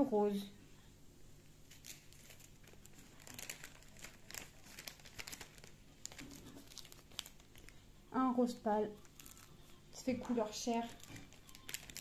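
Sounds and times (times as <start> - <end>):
plastic bags crinkling: 1.6 - 8.0, 8.8 - 12.0.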